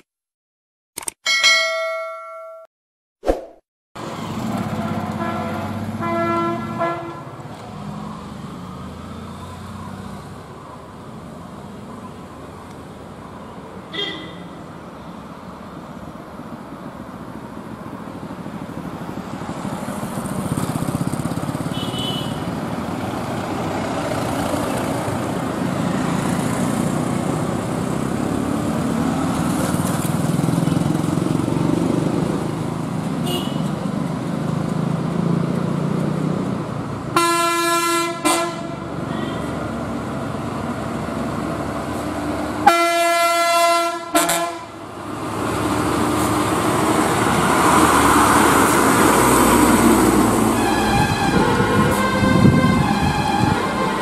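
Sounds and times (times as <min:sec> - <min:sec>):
vehicle engines rumbling: 0:04.0 - 0:54.0
loud bus horn: 0:04.8 - 0:07.4, 0:13.9 - 0:14.6, 0:21.7 - 0:22.5, 0:33.2 - 0:33.7, 0:37.1 - 0:39.7, 0:42.6 - 0:44.8, 0:50.4 - 0:54.0.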